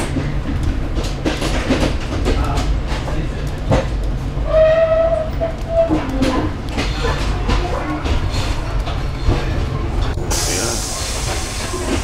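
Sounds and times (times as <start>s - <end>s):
wheels clicking over track: 0.0s - 10.5s
train rumble and rattle: 0.0s - 12.0s
train horn: 4.4s - 6.4s.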